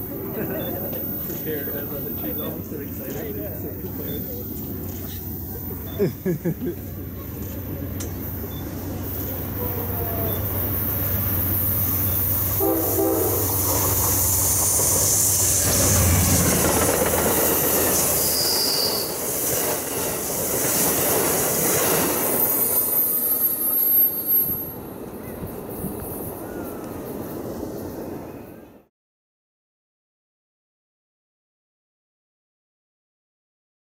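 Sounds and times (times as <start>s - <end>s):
train wheels on rails: 0.0s - 28.4s
diesel locomotive engine: 0.0s - 28.7s
train horn blast: 12.5s - 14.0s.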